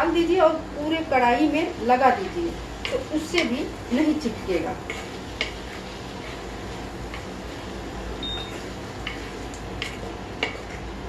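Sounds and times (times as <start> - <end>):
induction cooktop background noise: 0.0 - 11.0
wooden spatula scraping a pan: 2.2 - 7.9, 8.5 - 10.9
cooktop beep: 8.2 - 8.6.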